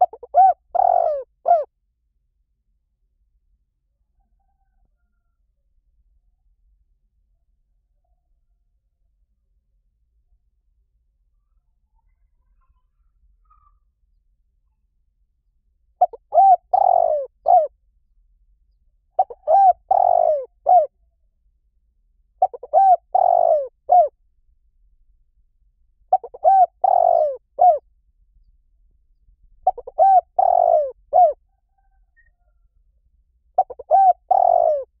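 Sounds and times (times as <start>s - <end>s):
dove cooing: 0.0s - 1.7s, 16.0s - 17.7s, 19.2s - 20.9s, 22.4s - 24.1s, 26.1s - 27.8s, 29.6s - 31.9s, 33.6s - 35.0s.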